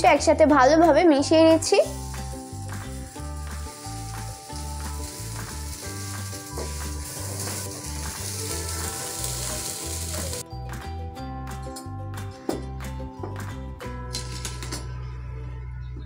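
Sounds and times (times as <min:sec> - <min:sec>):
background music: 0:00.0 - 0:16.0
food sizzling in frying pan: 0:01.6 - 0:10.4.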